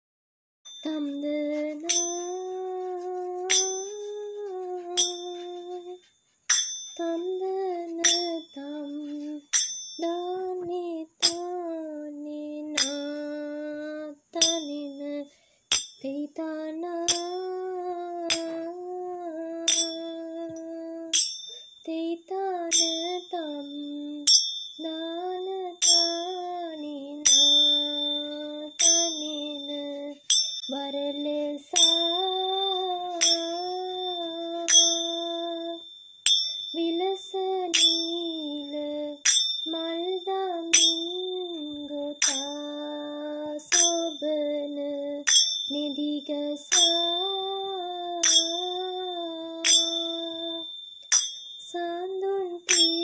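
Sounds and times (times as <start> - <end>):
ringing metallic strike: 0.7 - 11.8, 12.8 - 13.8, 14.4 - 16.1, 17.0 - 53.0
high ringing tone: 0.7 - 53.0
woman singing held notes: 0.8 - 6.1, 7.0 - 15.4, 16.0 - 21.2.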